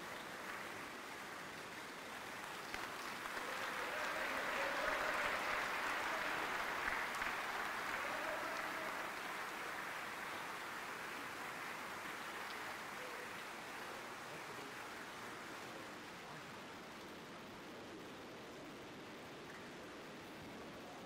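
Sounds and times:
audience applauding: 0:00.0 - 0:15.4.

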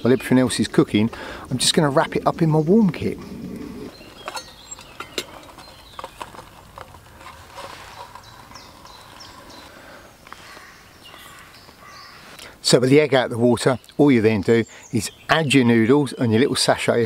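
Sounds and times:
wooden spoon scraping steel mug: 0:03.8 - 0:09.7.

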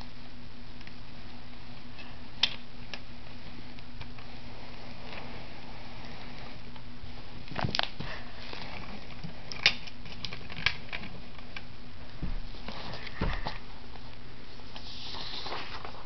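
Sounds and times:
steady hiss with low hum: 0:00.0 - 0:16.0
soft rustling: 0:03.1 - 0:09.5, 0:10.9 - 0:16.0.

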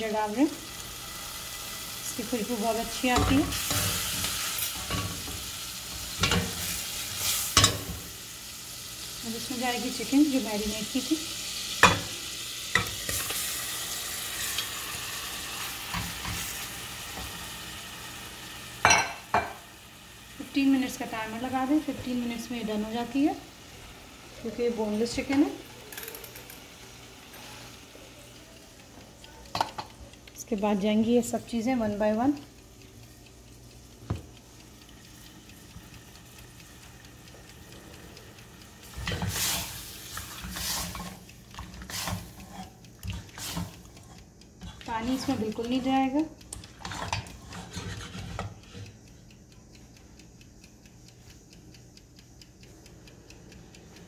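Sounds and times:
chicken sizzling in a pan: 0:00.0 - 0:49.0
spoon stirring and scraping pan: 0:02.4 - 0:08.1, 0:11.8 - 0:17.4, 0:38.8 - 0:45.9, 0:46.6 - 0:48.9
click: 0:46.4 - 0:54.0.

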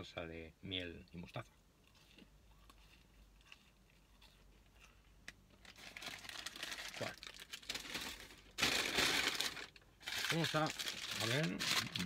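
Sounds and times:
paper packaging crinkling: 0:05.6 - 0:12.0.

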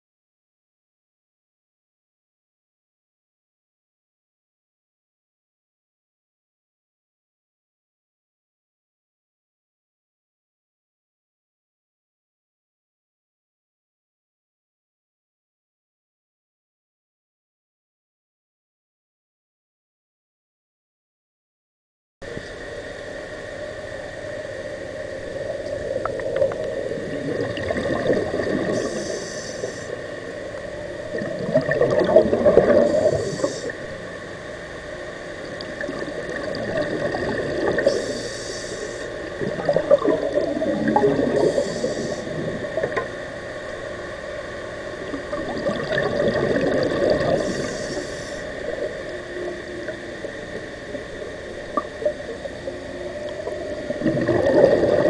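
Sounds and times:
steady faint hum: 0:22.2 - 0:55.0
exhaled bubbles underwater: 0:25.1 - 0:55.0
regulator inhale hiss: 0:28.5 - 0:30.6, 0:32.7 - 0:34.0, 0:37.7 - 0:39.4, 0:41.2 - 0:42.8, 0:47.3 - 0:48.9.

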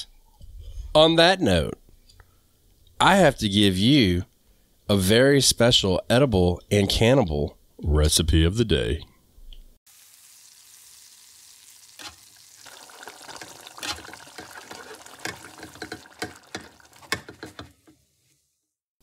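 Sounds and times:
food sizzling in a frying pan: 0:09.9 - 0:18.6.

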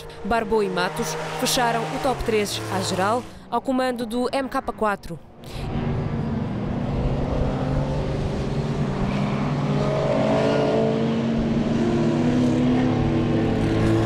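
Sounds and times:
race car engines running hard: 0:00.0 - 0:03.5, 0:05.3 - 0:14.0.

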